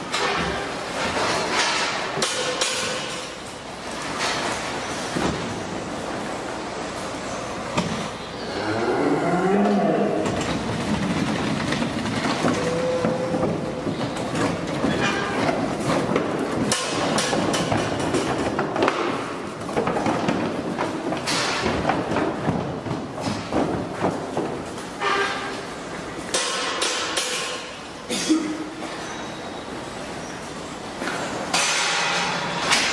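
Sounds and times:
cow mooing: 0:08.4 - 0:10.4, 0:12.5 - 0:13.6
hooves clattering on ramp: 0:09.6 - 0:27.7.

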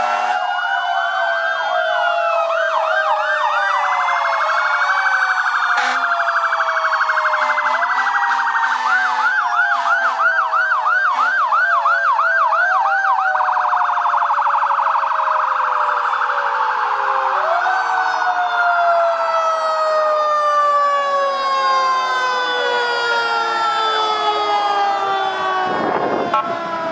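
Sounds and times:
buzzing siren warble: 0:00.0 - 0:26.9
fast siren yelp: 0:00.0 - 0:26.9
sirens wailing: 0:00.0 - 0:26.9
low horn blasts: 0:25.6 - 0:26.8.

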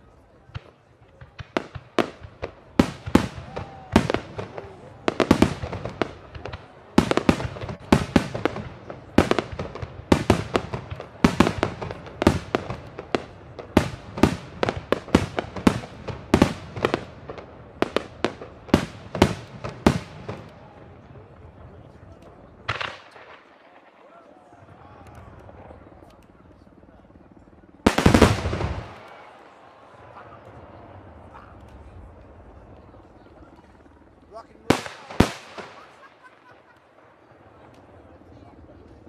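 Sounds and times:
fireworks bangs: 0:00.5 - 0:20.8, 0:22.6 - 0:24.1, 0:27.8 - 0:31.3, 0:34.6 - 0:38.0.

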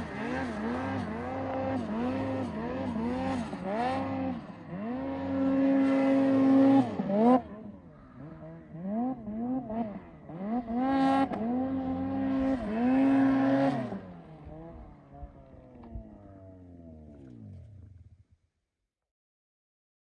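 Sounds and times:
snowmobile engine revving: 0:00.0 - 0:18.2.

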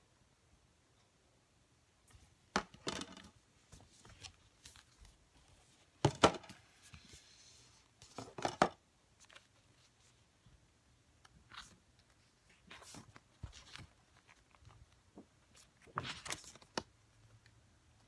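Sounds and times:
album case knocks and taps: 0:06.0 - 0:06.6
paper rustle: 0:11.4 - 0:16.9.

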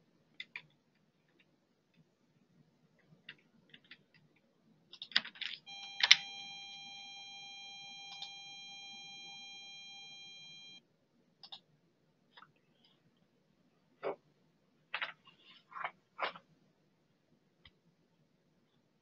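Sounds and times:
keyboard and mouse clicks: 0:00.3 - 0:02.1, 0:03.0 - 0:06.2, 0:11.4 - 0:11.7
steady electronic tone: 0:05.7 - 0:10.8.

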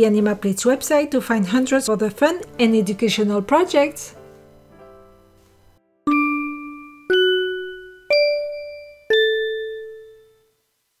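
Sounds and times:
four-note chime jingle: 0:06.1 - 0:10.5.

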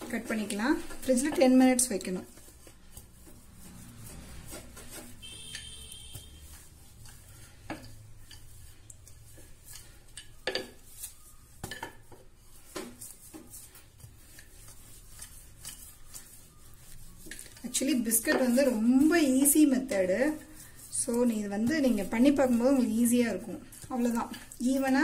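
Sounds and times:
rolling pin rumbling on dough: 0:12.0 - 0:25.0.

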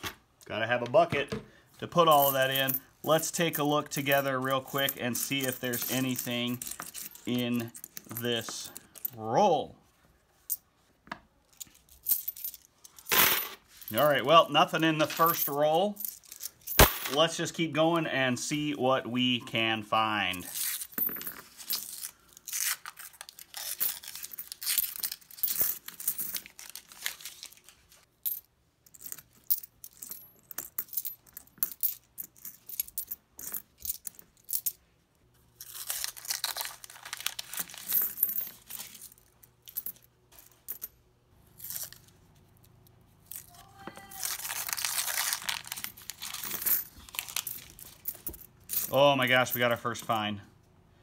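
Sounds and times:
coins clinking: 0:02.0 - 0:09.2, 0:11.5 - 0:17.4, 0:20.2 - 0:34.8, 0:35.6 - 0:41.0, 0:41.6 - 0:50.2
paper wrapper crinkling and tearing: 0:26.5 - 0:27.9, 0:35.6 - 0:37.9, 0:43.5 - 0:48.0.

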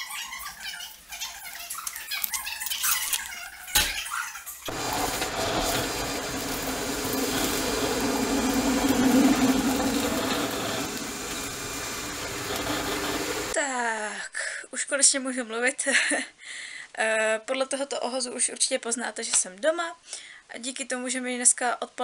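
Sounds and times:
low hum: 0:04.7 - 0:13.6
train running inside carriage: 0:04.7 - 0:13.6.

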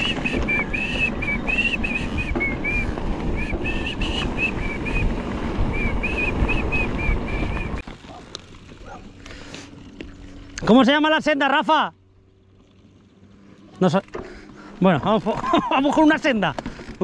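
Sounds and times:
high whistling squeals: 0:00.0 - 0:07.8
wind noise: 0:00.0 - 0:07.8
bike rattling: 0:00.0 - 0:17.0.

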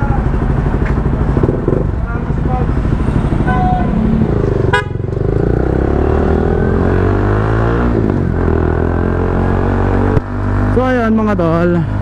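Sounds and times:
motorcycle engine pulling away: 0:04.0 - 0:10.6
horn toot: 0:04.7 - 0:05.0.

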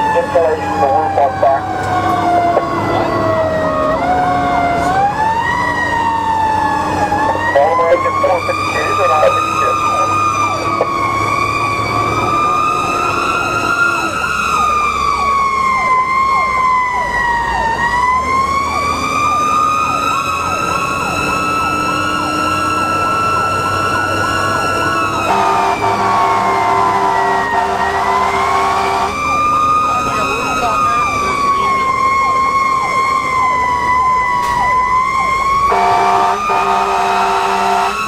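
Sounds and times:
fire engine siren wailing: 0:00.0 - 0:38.0
air horn blast: 0:25.3 - 0:29.2, 0:35.7 - 0:38.0.

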